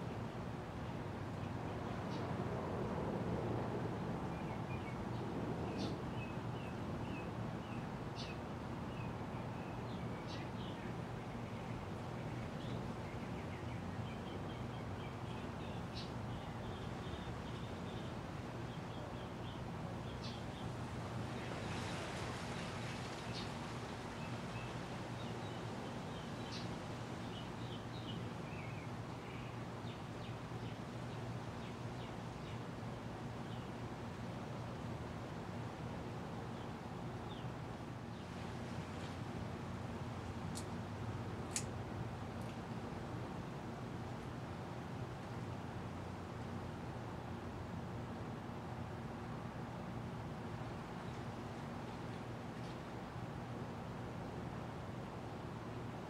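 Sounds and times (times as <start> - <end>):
small birds chirping: 4.3 - 22.0, 22.6 - 32.7.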